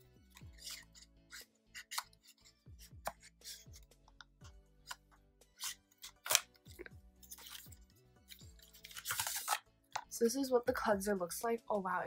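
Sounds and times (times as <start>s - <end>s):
quiet background music: 0.0s - 12.0s
scissors snipping: 0.3s - 3.6s, 5.6s - 6.7s, 8.3s - 9.6s.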